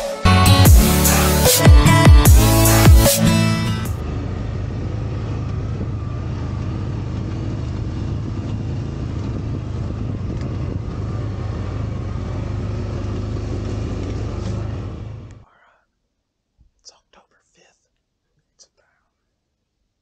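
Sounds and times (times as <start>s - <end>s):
utility vehicle engine droning: 0.0s - 15.4s.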